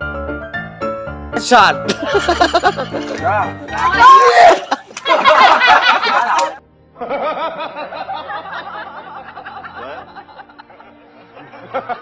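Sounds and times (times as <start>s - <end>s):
man laughing: 1.9s - 3.5s, 4.4s - 10.9s.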